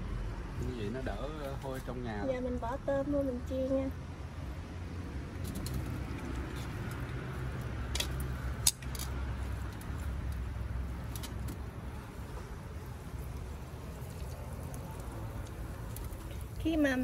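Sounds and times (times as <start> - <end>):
prawns frying in hot oil: 5.5 - 17.0.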